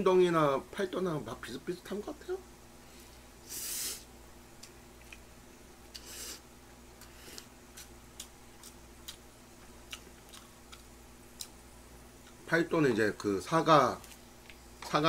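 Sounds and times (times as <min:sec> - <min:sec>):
quiet chewing: 0:04.6 - 0:05.3, 0:07.0 - 0:11.6.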